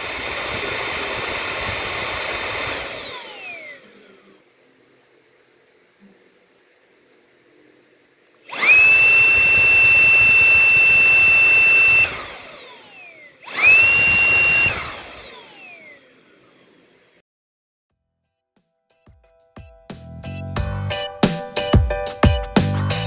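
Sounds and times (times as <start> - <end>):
vacuum cleaner motor whine: 0.0 - 17.2.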